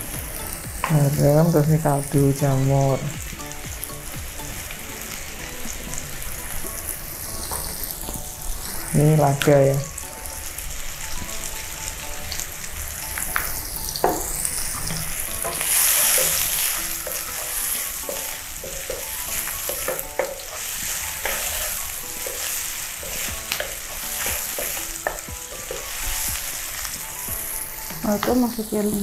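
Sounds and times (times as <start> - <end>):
mushrooms sizzling in a frying pan: 0.0 - 29.0
wooden spatula scraping a pan: 14.2 - 27.0.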